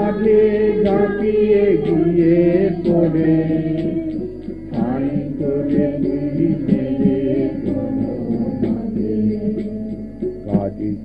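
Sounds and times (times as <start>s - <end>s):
held instrumental tones: 0.0s - 11.0s
sharp percussion beat: 0.0s - 11.0s
voices singing together: 0.0s - 11.0s.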